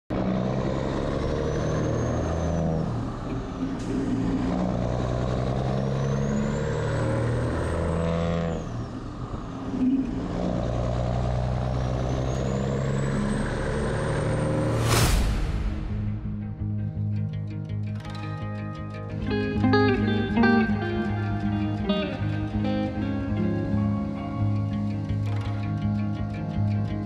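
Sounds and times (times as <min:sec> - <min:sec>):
truck diesel engine shifting gears: 0:00.1 - 0:14.9, 0:17.5 - 0:27.0
high whistle rising: 0:12.6 - 0:16.4.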